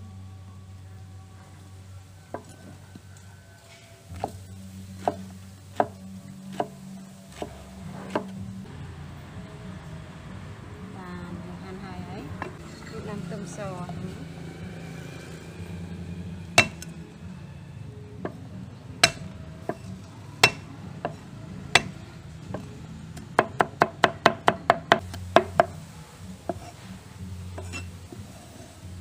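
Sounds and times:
cleaver chopping on wooden block: 0:05.0 - 0:08.3, 0:16.6 - 0:16.9, 0:19.0 - 0:21.2, 0:23.3 - 0:25.8.

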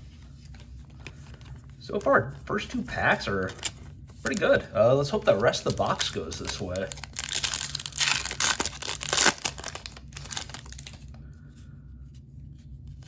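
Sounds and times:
cards rustling: 0:00.0 - 0:11.2
foil wrapper tearing and crinkling: 0:05.5 - 0:11.2.

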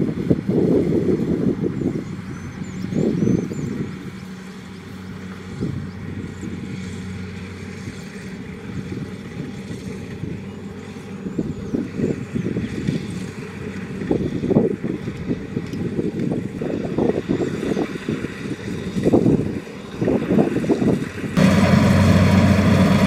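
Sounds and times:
combine harvester running: 0:00.0 - 0:23.0
rough low rumble: 0:21.4 - 0:23.0.

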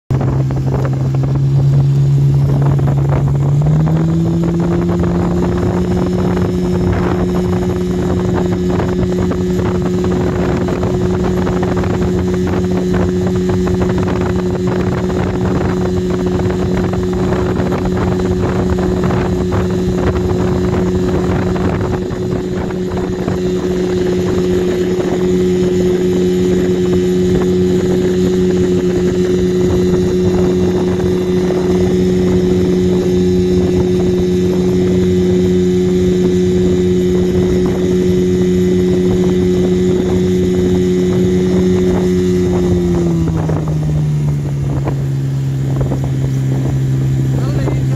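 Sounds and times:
outboard motor running: 0:00.1 - 0:47.9.

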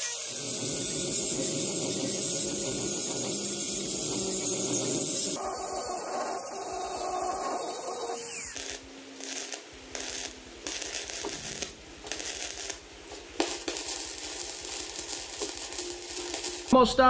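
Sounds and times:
angle grinder on steel: 0:00.0 - 0:12.8
welding arc crackling: 0:00.0 - 0:16.8.

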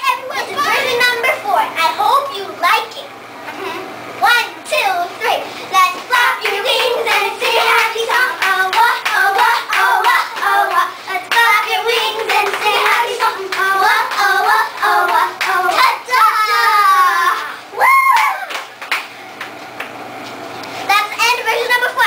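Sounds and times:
girls singing and chanting: 0:04.2 - 0:18.2
hand claps and slaps: 0:08.4 - 0:15.9, 0:18.1 - 0:20.0.

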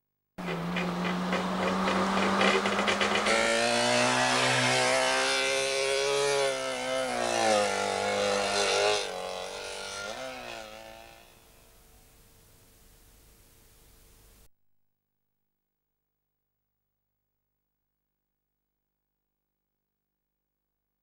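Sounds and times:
two-stroke car engine revving: 0:00.4 - 0:11.8
another car engine: 0:00.4 - 0:11.9.

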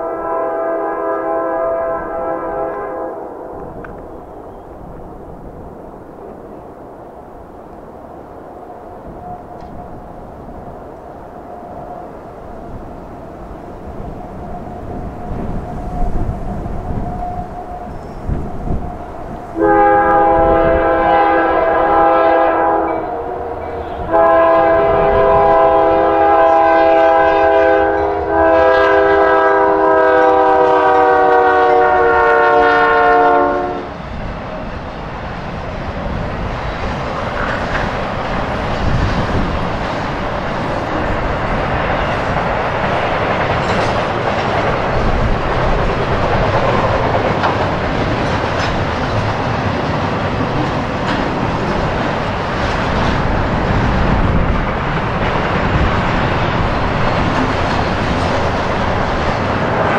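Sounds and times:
locomotive chime horn blasts: 0:00.0 - 0:03.3, 0:19.6 - 0:33.9
train wheels clicking over rail joints: 0:33.9 - 0:59.9.

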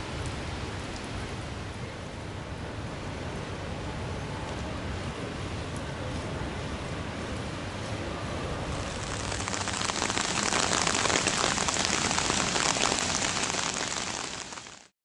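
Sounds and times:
rain splashing on standing water: 0:08.7 - 0:14.9.

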